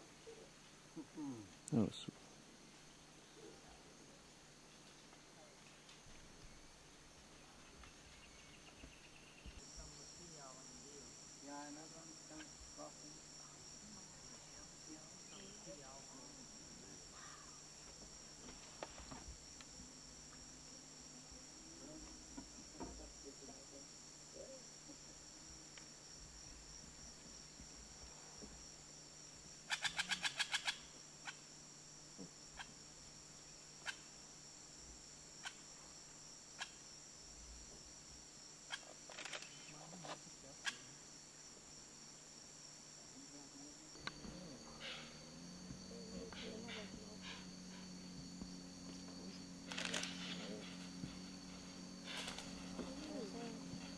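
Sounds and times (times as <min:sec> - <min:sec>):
high insect chorus: 0:00.0 - 0:53.9
oropendola calls: 0:12.0 - 0:17.8, 0:29.6 - 0:31.4, 0:44.1 - 0:53.9
rapid loud pulses: 0:46.7 - 0:53.9.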